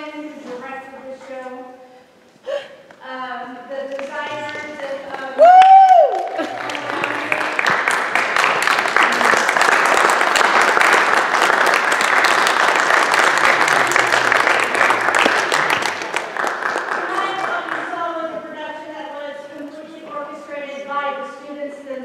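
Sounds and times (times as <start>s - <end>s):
audience applause: 5.4s - 18.0s.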